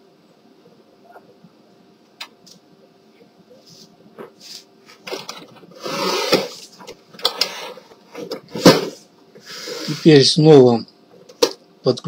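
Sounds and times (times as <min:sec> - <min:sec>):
handling clicks and scraping on plastic: 0:04.2 - 0:09.0.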